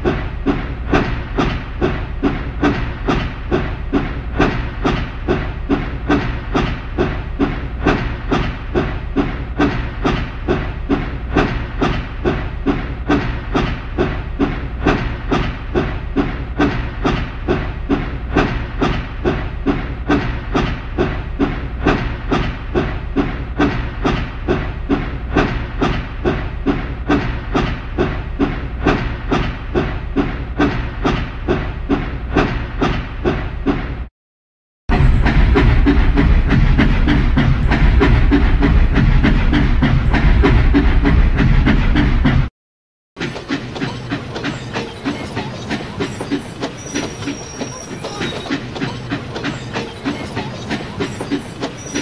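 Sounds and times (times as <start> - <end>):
steam locomotive chuffing: 0.0 - 34.1, 34.9 - 42.5, 43.2 - 52.0
steady low rumble: 34.9 - 42.5.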